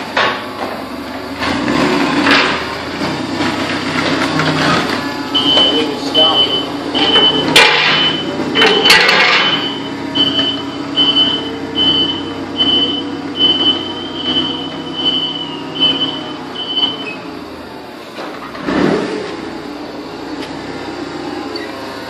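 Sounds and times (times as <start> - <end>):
forklift engine running: 0.0 - 22.0
forklift warning beeper: 5.2 - 17.6.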